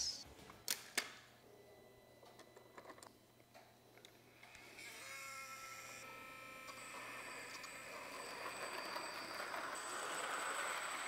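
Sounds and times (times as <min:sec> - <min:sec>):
toy train electric whine: 0:04.3 - 0:11.0
train rolling on plastic track: 0:07.0 - 0:11.0.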